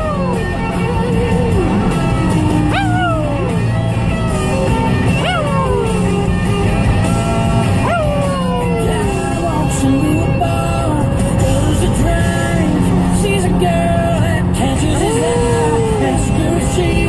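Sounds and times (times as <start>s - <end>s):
dog howling: 0.0s - 0.4s, 2.6s - 3.6s, 5.1s - 6.3s, 7.1s - 9.6s
country music on car radio: 0.0s - 17.0s.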